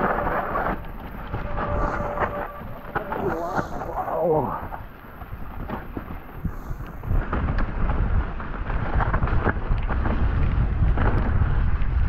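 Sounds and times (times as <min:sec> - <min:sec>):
wind rumble on microphone: 0:00.0 - 0:12.0
bike clicks and rattles: 0:04.5 - 0:12.0.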